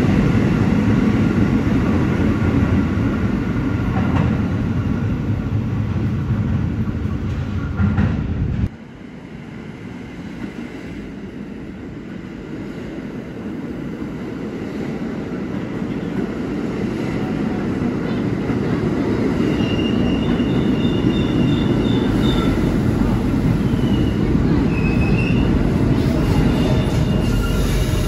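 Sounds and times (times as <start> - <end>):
subway train rumbling: 0.0 - 28.0
train wheels squealing: 19.4 - 22.7, 23.6 - 28.0.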